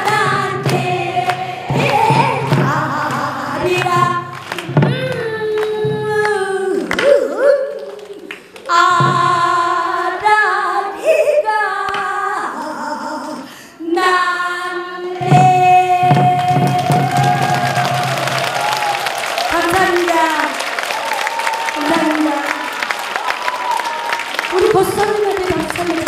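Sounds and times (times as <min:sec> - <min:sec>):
woman singing with vibrato: 0:00.0 - 0:17.9, 0:21.7 - 0:22.7.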